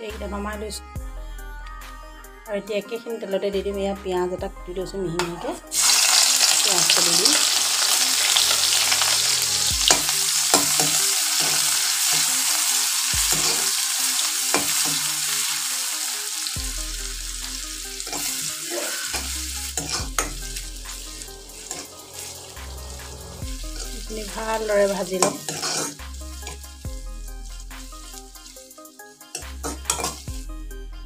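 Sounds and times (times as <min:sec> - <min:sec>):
onion sizzling in oil: 0:05.7 - 0:30.7
metal spatula scraping pan: 0:18.0 - 0:30.4.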